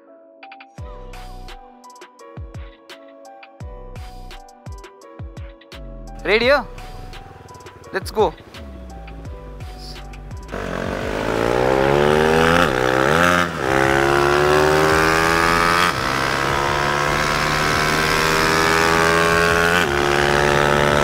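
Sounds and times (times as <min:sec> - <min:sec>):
motorcycle engine accelerating: 0:10.2 - 0:21.0.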